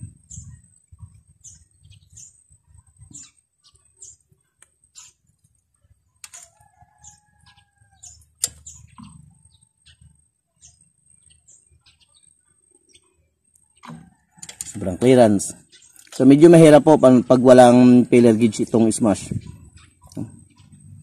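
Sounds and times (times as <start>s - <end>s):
distant rooster crowing: 6.3s - 8.4s, 13.8s - 15.6s
small metallic clicks and taps: 8.4s - 9.2s, 13.5s - 14.8s.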